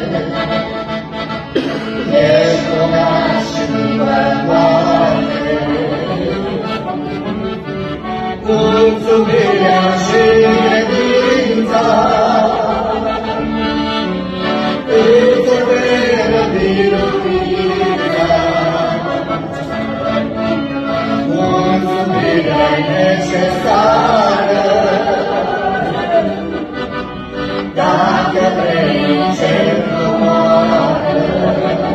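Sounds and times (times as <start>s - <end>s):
instrumental held chords: 0.0s - 31.9s
person singing: 21.2s - 26.5s.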